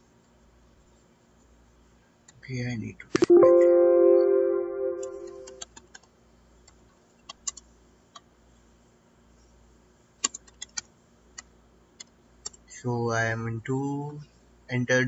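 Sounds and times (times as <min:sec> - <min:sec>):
ringing chime tone: 0:03.3 - 0:05.6.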